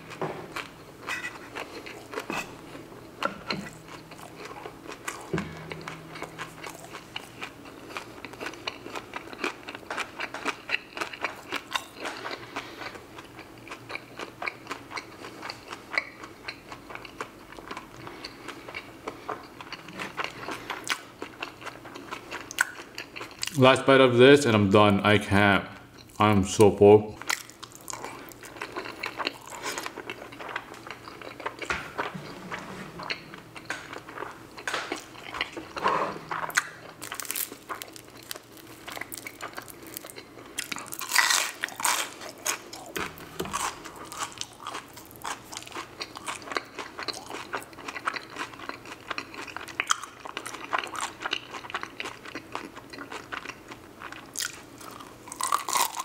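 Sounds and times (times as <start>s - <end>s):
wet chewing of pasta: 0.0s - 23.6s, 27.2s - 56.0s
crunching of fried pastry crust: 6.1s - 23.6s, 27.2s - 31.7s, 36.5s - 56.0s.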